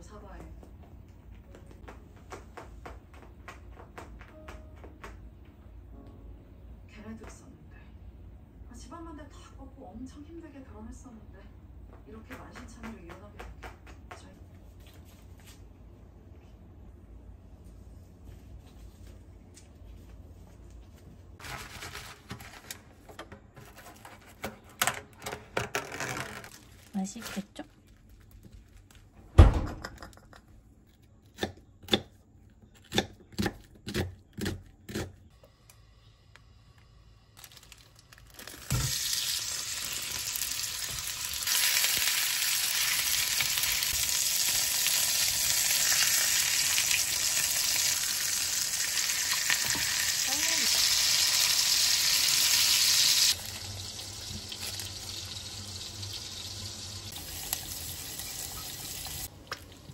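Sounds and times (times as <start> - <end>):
food sizzling in a pan: 38.6 - 59.3.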